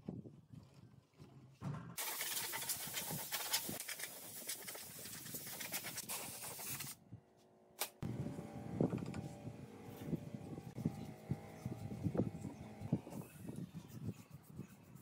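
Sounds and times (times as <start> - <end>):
low hum: 8.0 - 13.4.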